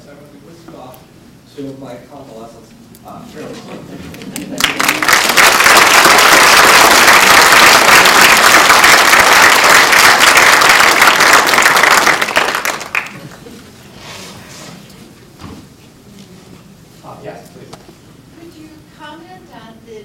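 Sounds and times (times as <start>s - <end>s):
audience clapping: 4.1s - 13.6s.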